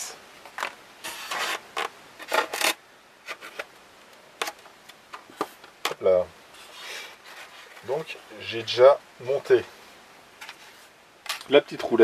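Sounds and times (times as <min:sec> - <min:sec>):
foam rubbing and scraping: 0:01.0 - 0:03.6, 0:06.5 - 0:08.2.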